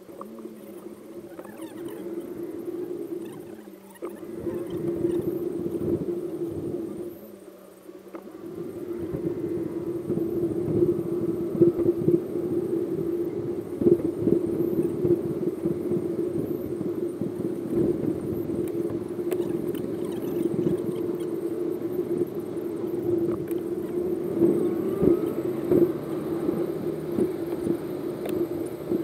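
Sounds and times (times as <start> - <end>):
constant low hum: 0.0 - 29.0
car engine and road rumble: 18.0 - 29.0.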